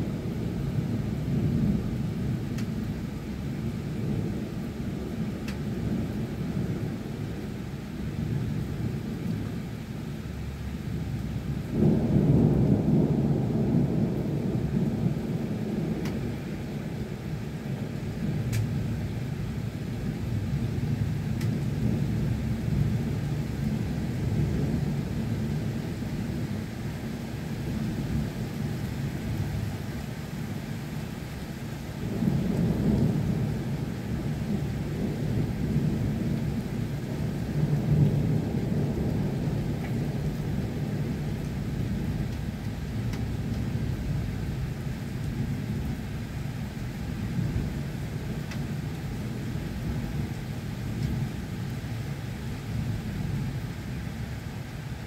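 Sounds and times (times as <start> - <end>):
steady rain: 0.0 - 55.0
rolling thunder rumble: 10.4 - 30.5, 31.8 - 54.6.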